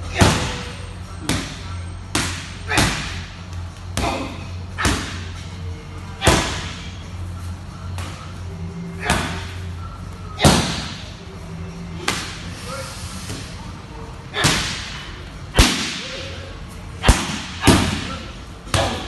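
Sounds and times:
kicks and punches on pads: 0:00.1 - 0:00.6, 0:01.3 - 0:03.3, 0:10.4 - 0:11.0, 0:15.6 - 0:16.0, 0:17.0 - 0:19.0.

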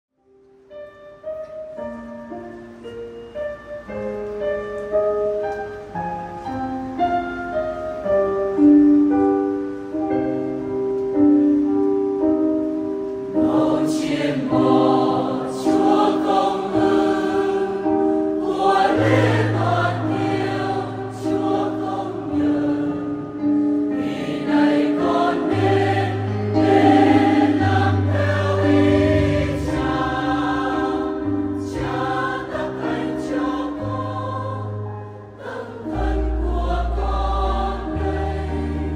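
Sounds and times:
keyboard melody: 0:00.2 - 0:38.9
choir singing a hymn: 0:11.2 - 0:38.9.

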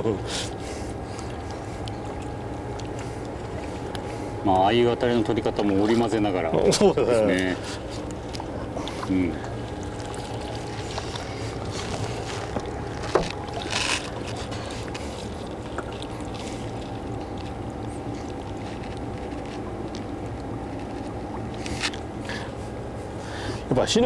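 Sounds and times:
lapping water: 0:00.0 - 0:23.7
faint steady hum: 0:00.0 - 0:24.0
wind: 0:00.0 - 0:24.0.

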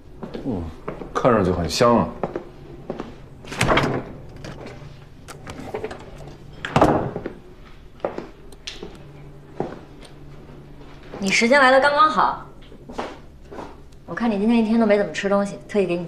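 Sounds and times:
refrigerator door opening and shutting: 0:03.4 - 0:07.4.

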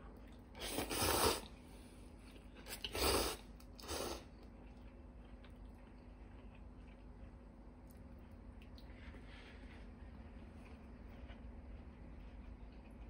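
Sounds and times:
person slurping noodles: 0:00.6 - 0:01.5, 0:02.7 - 0:04.3.

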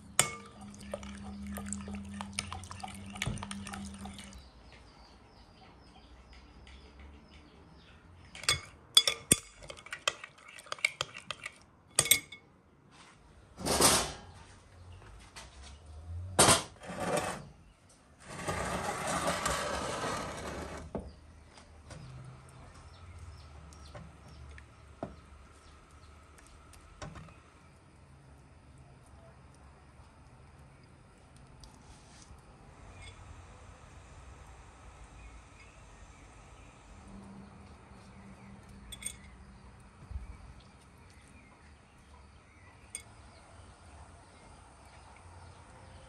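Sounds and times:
metal spoon scraping glass bowl: 0:00.1 - 0:04.4, 0:08.4 - 0:12.4, 0:18.2 - 0:20.8, 0:38.8 - 0:39.3.

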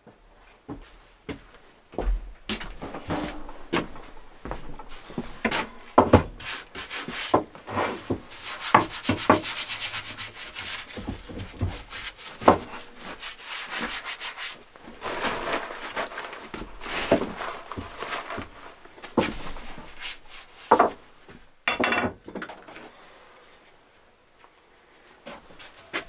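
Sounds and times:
hand rubbing and scraping wood: 0:02.1 - 0:21.6.

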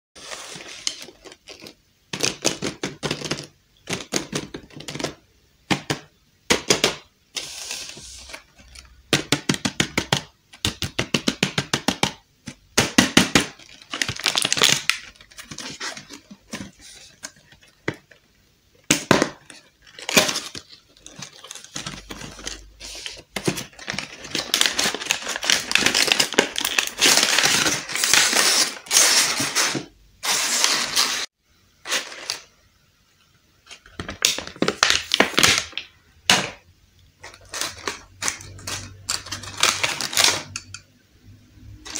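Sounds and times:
packaging tearing and crinkling: 0:13.5 - 0:17.3, 0:19.5 - 0:31.3, 0:34.0 - 0:36.4, 0:37.3 - 0:40.6.

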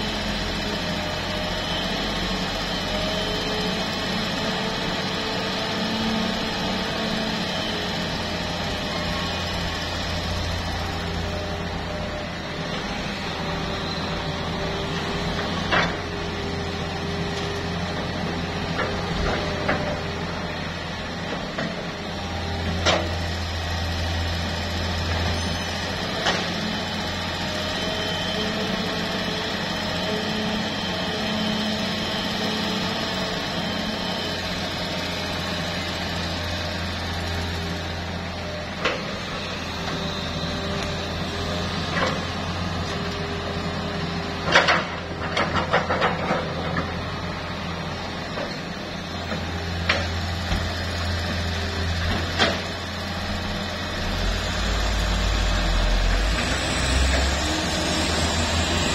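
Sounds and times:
diesel excavator engine running: 0:00.0 - 0:58.9
hydraulic whine: 0:49.2 - 0:58.9.

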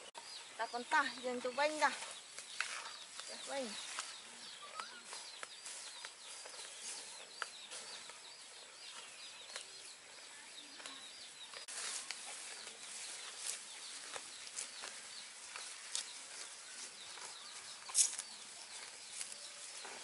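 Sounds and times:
small birds chirping: 0:00.0 - 0:20.0
rustling noise: 0:05.0 - 0:08.3, 0:11.5 - 0:20.0.

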